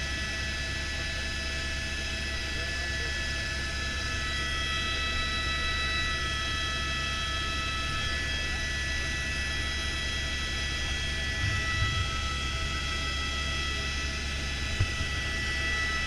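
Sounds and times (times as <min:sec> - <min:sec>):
helicopter turbine and rotor drone: 0:00.0 - 0:16.0
high whining tones: 0:10.9 - 0:16.0.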